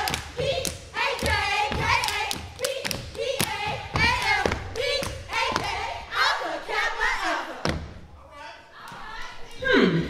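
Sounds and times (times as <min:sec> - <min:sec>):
rhythmic stomping and clapping: 0:00.0 - 0:08.1.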